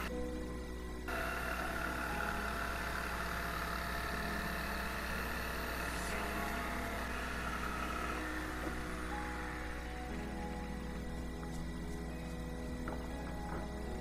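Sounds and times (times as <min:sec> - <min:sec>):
electric jigsaw cutting wood: 0:01.1 - 0:11.6.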